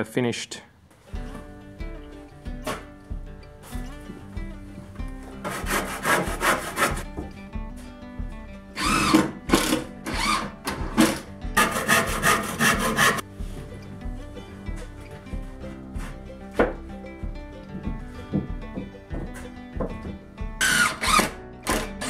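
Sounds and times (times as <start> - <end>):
background music with steady beat: 0.8 - 22.0
hand saw cutting wood: 5.4 - 7.1, 8.8 - 13.2, 20.6 - 22.0.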